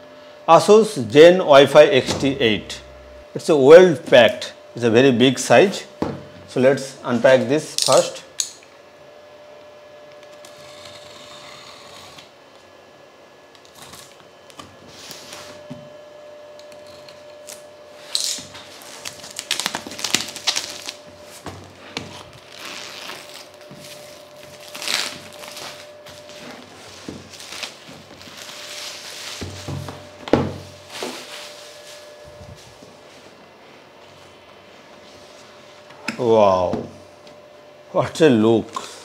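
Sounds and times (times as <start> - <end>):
faint steady hum: 0.0 - 39.0
plastic wrap tearing and crinkling: 17.4 - 29.5.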